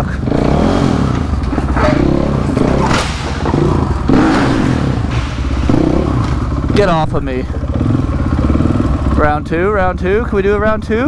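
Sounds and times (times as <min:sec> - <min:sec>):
motorcycle engine revving: 0:00.0 - 0:11.0
clatter: 0:00.8 - 0:09.2
thump: 0:01.4 - 0:06.8.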